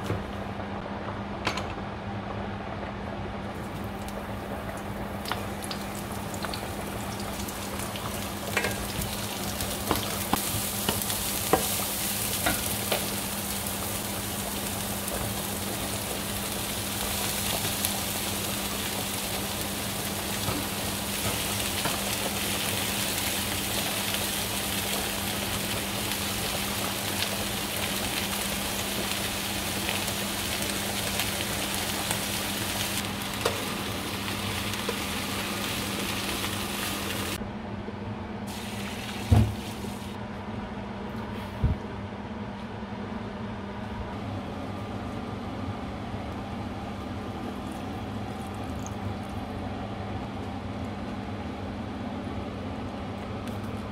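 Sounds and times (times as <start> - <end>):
vegetables sizzling in a pan: 3.7 - 37.4, 38.5 - 40.2.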